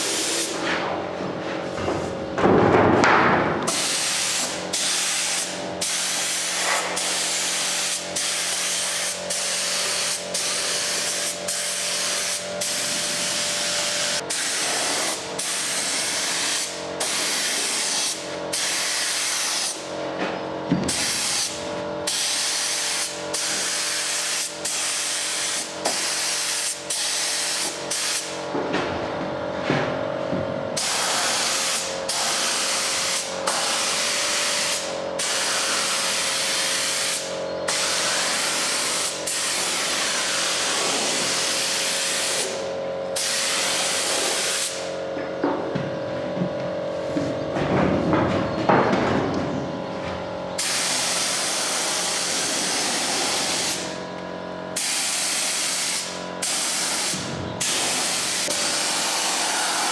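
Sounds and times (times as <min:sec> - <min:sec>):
spray gun hissing: 0:00.0 - 0:00.6, 0:03.7 - 0:19.8, 0:20.9 - 0:28.3, 0:30.8 - 0:42.6, 0:43.2 - 0:44.9, 0:50.6 - 0:54.0, 0:54.8 - 0:59.9.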